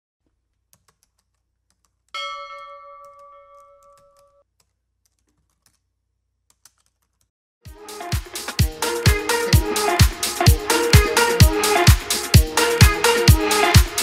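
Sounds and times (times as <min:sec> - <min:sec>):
bell ding: 0:02.2 - 0:04.4
dance music: 0:07.7 - 0:14.0.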